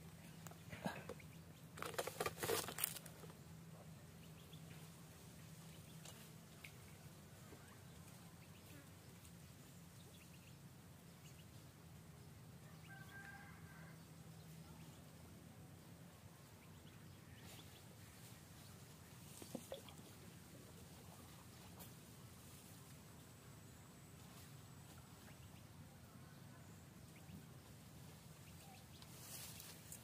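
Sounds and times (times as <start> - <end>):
faint low hum: 0.0 - 30.0
leaves and stems rustling: 1.8 - 3.3, 28.8 - 30.0.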